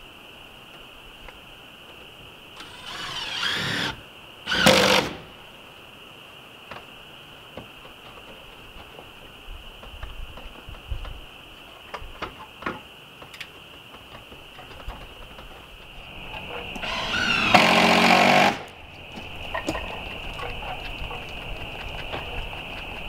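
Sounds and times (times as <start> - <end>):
electric power saw whining: 2.6 - 5.3, 16.2 - 18.8.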